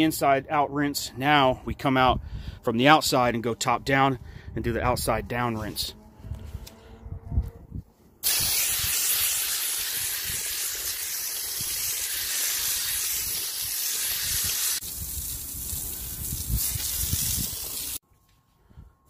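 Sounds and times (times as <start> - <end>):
hose nozzle spraying water on coil: 8.2 - 18.0.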